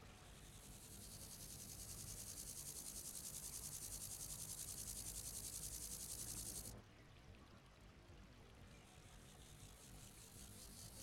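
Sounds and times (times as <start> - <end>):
grasshopper chirring: 0.7 - 6.7.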